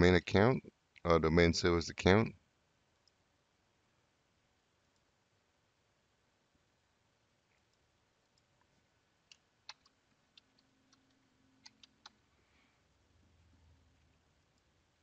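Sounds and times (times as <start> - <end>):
faint keyboard keystrokes: 9.3 - 12.2.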